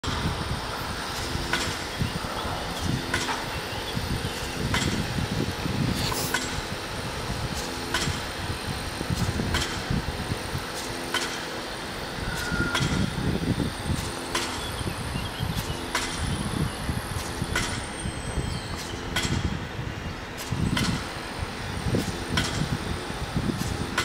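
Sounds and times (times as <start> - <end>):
mechanical rumble: 0.0 - 24.0.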